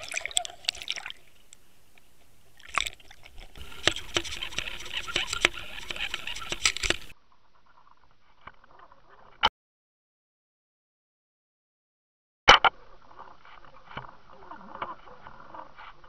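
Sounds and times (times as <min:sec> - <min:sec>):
water gurgling and trickling: 0:00.0 - 0:07.2
sharp clicks and knocks: 0:02.7 - 0:07.1.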